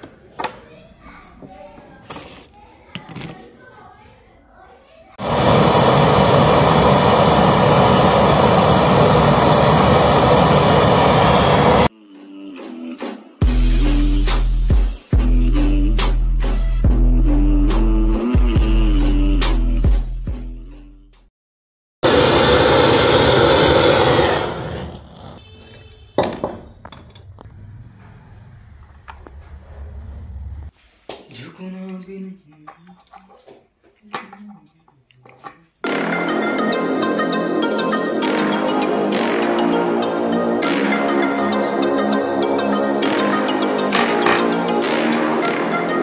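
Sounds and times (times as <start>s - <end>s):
gas blowtorch roaring: 5.2s - 11.9s, 22.0s - 25.4s.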